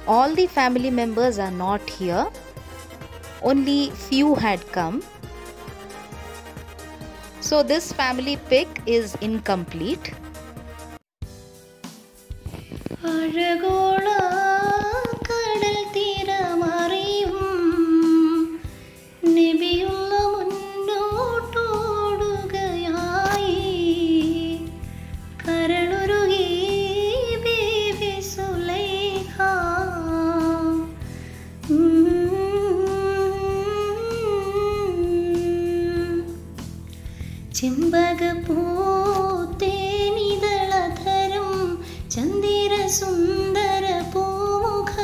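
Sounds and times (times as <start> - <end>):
woman singing: 0.0 - 2.4, 3.4 - 5.0, 12.7 - 36.4, 37.5 - 45.0.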